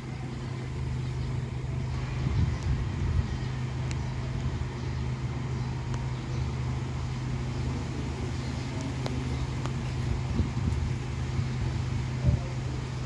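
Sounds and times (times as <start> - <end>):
leaves rustling in wind: 0.0 - 13.0
wind buffeting microphone: 0.0 - 13.0
light ticks: 3.8 - 4.5.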